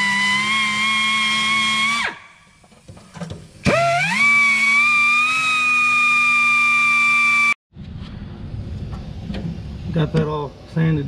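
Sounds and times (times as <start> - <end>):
power grinder whining: 3.6 - 7.6.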